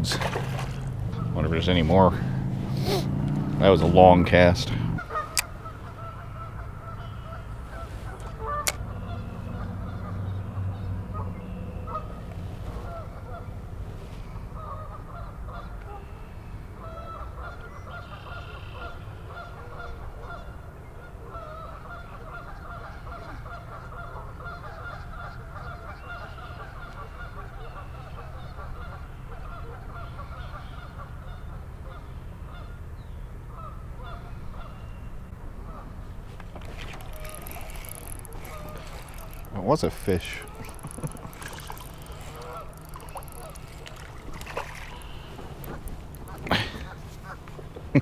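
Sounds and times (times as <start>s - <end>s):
geese honking: 1.0s - 2.4s, 5.0s - 11.3s, 16.8s - 32.8s, 33.5s - 34.9s, 35.6s - 47.7s.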